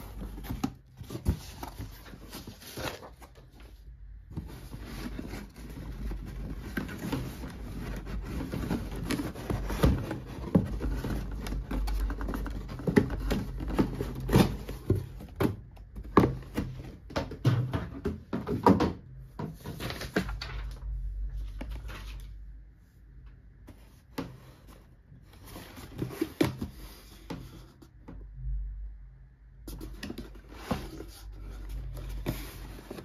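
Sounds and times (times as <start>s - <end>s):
cardboard rubbing and scraping: 4.3s - 15.4s, 29.7s - 33.0s.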